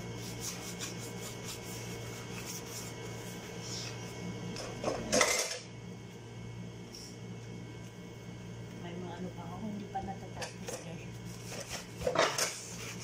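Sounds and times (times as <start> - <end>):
dishes clattering: 12.0 - 12.6.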